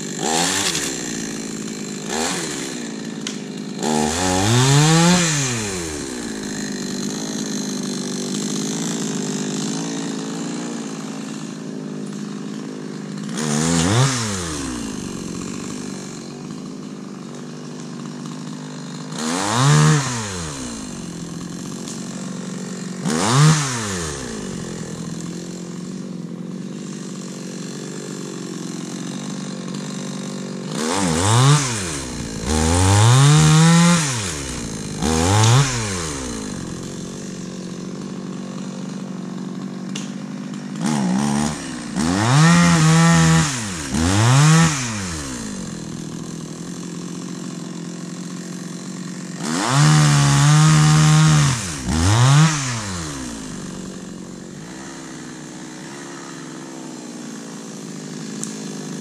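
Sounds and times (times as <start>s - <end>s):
chainsaw idling and revving: 0.0s - 59.0s.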